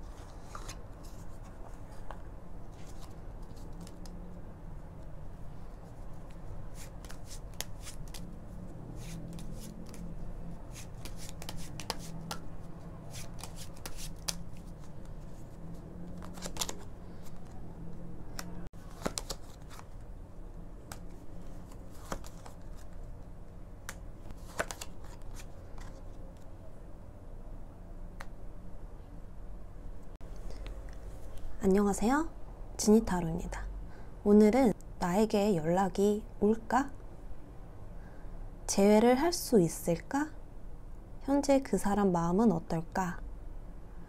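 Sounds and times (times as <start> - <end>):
cards being shuffled: 0.1 - 4.3, 5.7 - 17.7, 18.3 - 20.1, 20.8 - 26.5.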